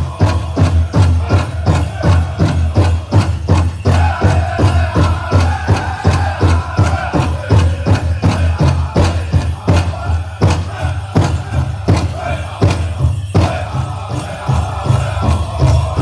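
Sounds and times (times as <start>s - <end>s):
large hand drum beating: 0.0s - 16.0s
singers' high voices: 3.8s - 16.0s.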